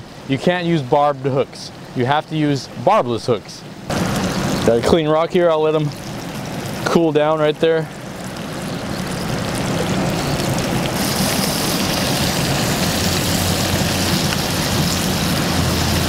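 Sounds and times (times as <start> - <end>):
river rushing over rocks: 8.4 - 16.0.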